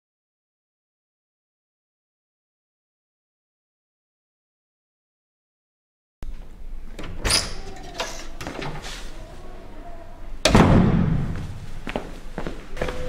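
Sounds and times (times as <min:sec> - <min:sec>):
door pushed shut: 0:07.0 - 0:09.1, 0:10.4 - 0:11.5.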